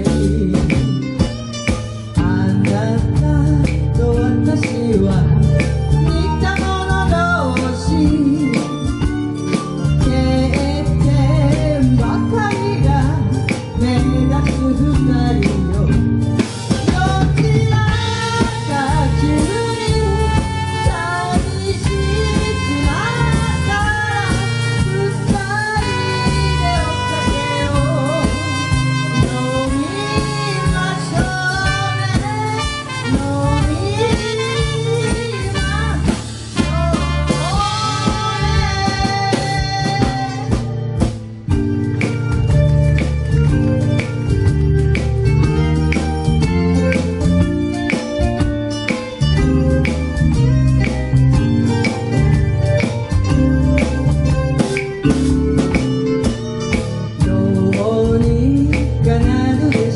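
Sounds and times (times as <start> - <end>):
live band playing pop ballad: 0.0 - 59.9
lead vocalist singing: 16.8 - 40.8, 57.2 - 59.9.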